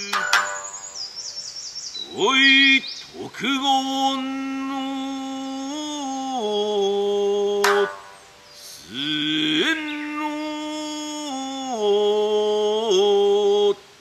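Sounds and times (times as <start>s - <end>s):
person chanting: 0.0s - 1.0s, 2.0s - 13.9s
plucked lute stroke: 0.0s - 1.2s, 7.6s - 8.3s
birds chirping: 0.0s - 10.6s.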